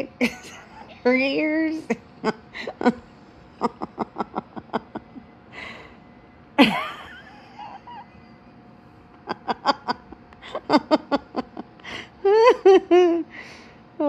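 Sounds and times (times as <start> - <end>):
woman laughing breathily: 2.2 - 6.0, 6.6 - 8.4, 9.2 - 13.7.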